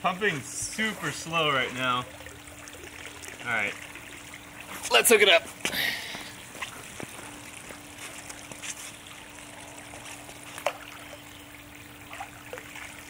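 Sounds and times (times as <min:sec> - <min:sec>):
faint steady hum: 0:00.0 - 0:13.0
pool water trickling: 0:00.0 - 0:13.0.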